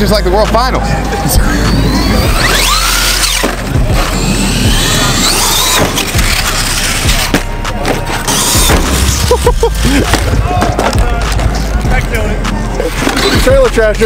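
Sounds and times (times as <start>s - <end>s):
electric motor whining: 1.0s - 9.9s.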